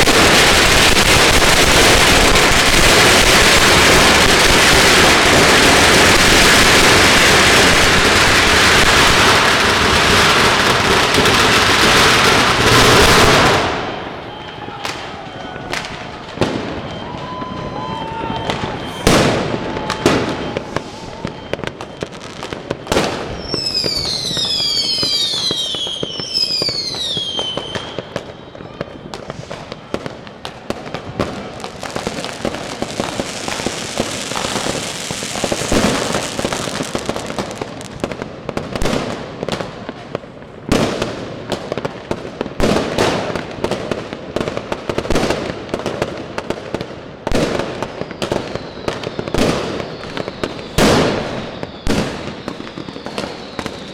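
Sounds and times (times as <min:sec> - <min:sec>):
firecrackers banging and popping: 0:00.0 - 0:53.9
fireworks whistling down in pitch: 0:00.0 - 0:53.9
long firework hiss: 0:20.5 - 0:21.6, 0:31.4 - 0:38.1.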